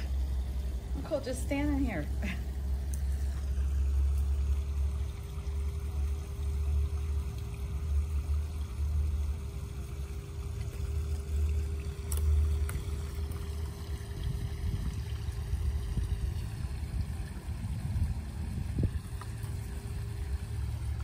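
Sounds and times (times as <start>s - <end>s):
faint steady hum: 0.0s - 21.0s
wind rumbling on microphone: 12.7s - 21.0s.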